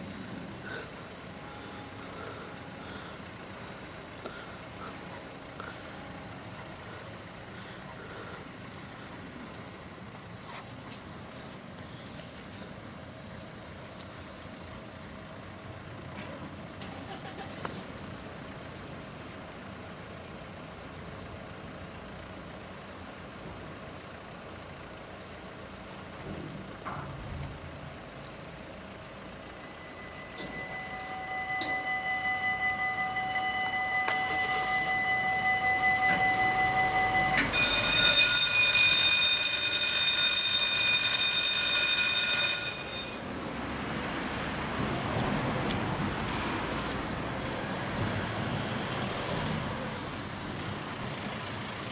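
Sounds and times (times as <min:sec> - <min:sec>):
faint steady hum: 0:00.0 - 0:15.3
engine running: 0:00.0 - 0:51.9
steady electronic warning tone: 0:00.7 - 0:04.0, 0:29.4 - 0:43.2
electric warning bell ringing: 0:29.4 - 0:43.4.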